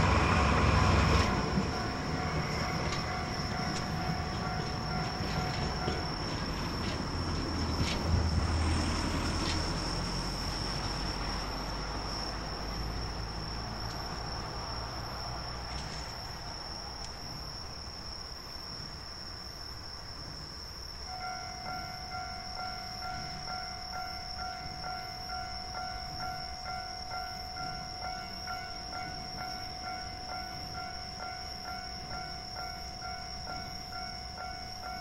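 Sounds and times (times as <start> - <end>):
level crossing alarm ringing: 0.0 - 7.0, 21.1 - 35.0
locomotive rumble: 0.0 - 16.6.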